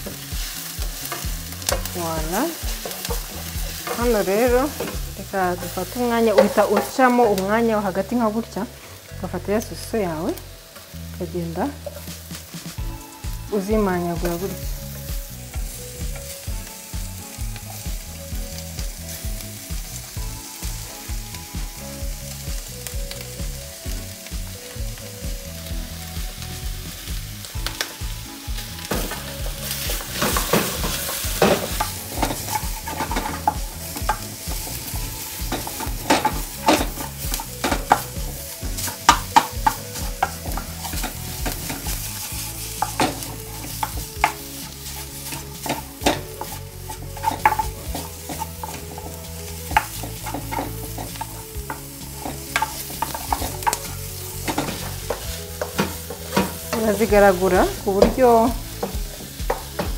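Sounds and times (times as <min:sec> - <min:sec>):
wooden spoon scraping a pan: 0:00.0 - 0:10.9, 0:11.7 - 0:12.8, 0:28.6 - 0:59.9
food sizzling in a pan: 0:00.0 - 0:59.9.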